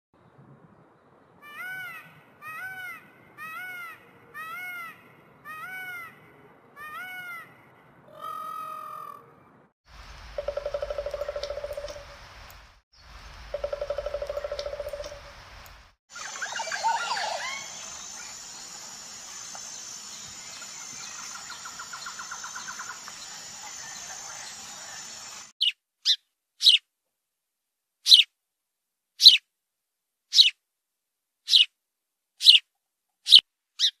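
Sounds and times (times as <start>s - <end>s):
fast rattling call: 10.4s - 12.1s
sparrows chirping: 16.1s - 26.8s, 28.1s - 28.3s, 29.2s - 29.4s, 30.3s - 30.6s, 31.5s - 31.7s, 33.3s - 34.0s.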